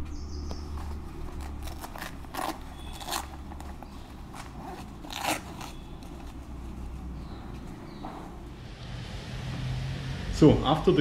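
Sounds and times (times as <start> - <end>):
fabric rustle: 0.6 - 8.6
jacket fastenings ripping: 0.9 - 6.5.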